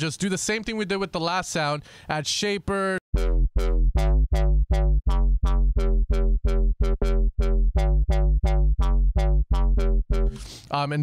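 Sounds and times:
synth bass note repeating: 3.1 - 10.4.

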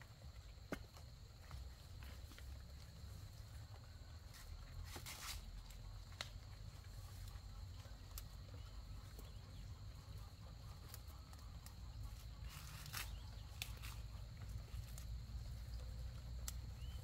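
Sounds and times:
soft crackles and snaps: 4.3 - 8.4, 10.7 - 17.0.

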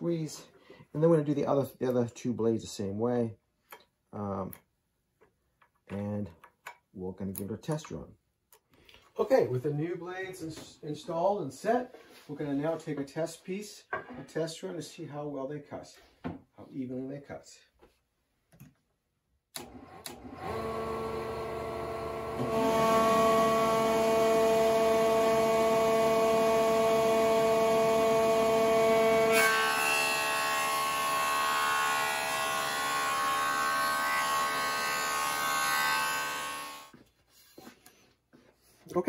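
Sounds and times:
jointer whining: 19.5 - 31.2.

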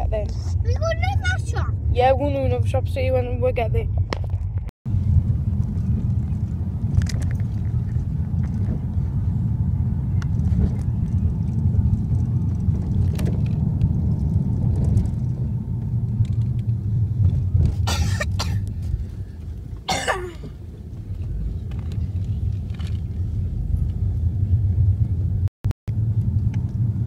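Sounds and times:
car engine and road noise: 0.0 - 27.0
person coughing: 17.9 - 18.6, 19.9 - 20.5.

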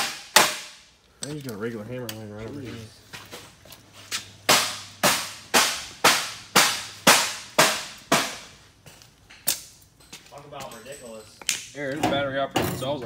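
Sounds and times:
hammer striking metal: 0.0 - 0.8.

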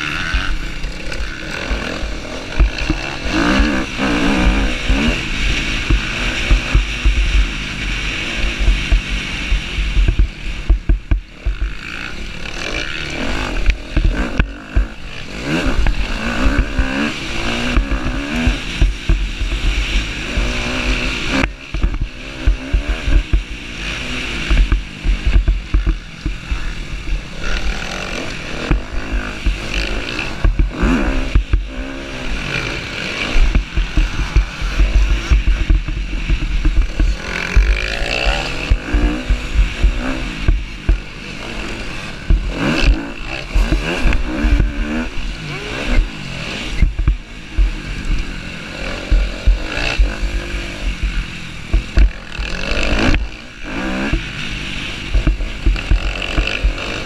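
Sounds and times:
motorcycle engine revving: 0.0 - 57.0
wind buffeting microphone: 13.4 - 57.0.

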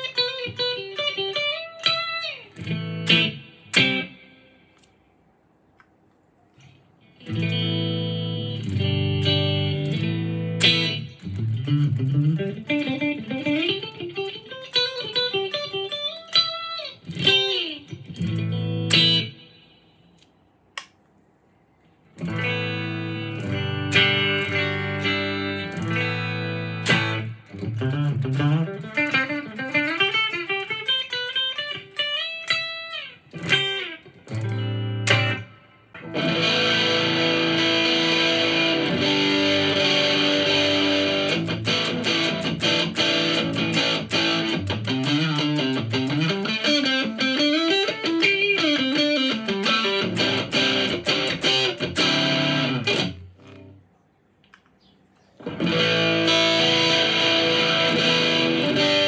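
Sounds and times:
electric guitar playing: 0.0 - 4.9, 6.6 - 19.9, 22.1 - 53.8, 55.4 - 59.0.

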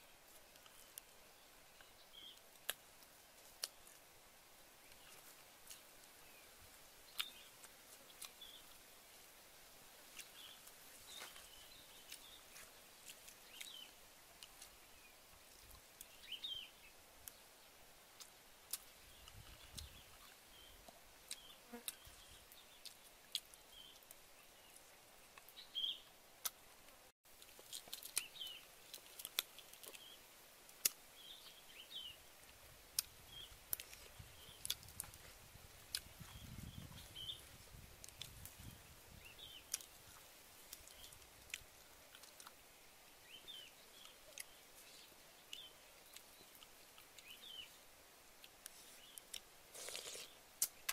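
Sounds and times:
chewing: 7.1 - 8.6, 10.1 - 14.8, 22.8 - 24.2, 27.4 - 30.2, 33.7 - 37.0, 39.7 - 42.6, 48.4 - 50.9.

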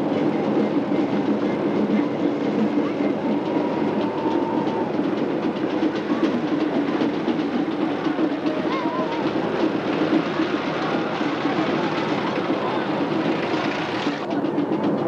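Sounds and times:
tractor engine rattling: 4.9 - 15.0.

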